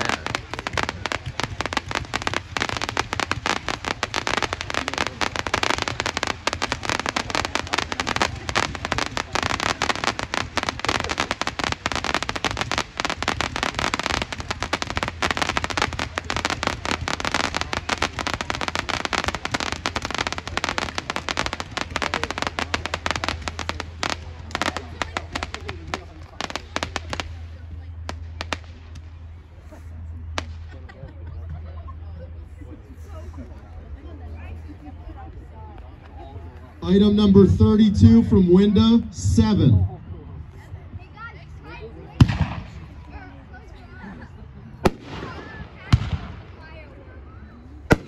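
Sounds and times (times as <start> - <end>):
fireworks popping and crackling: 0.0 - 30.9, 42.1 - 43.4, 44.8 - 47.0.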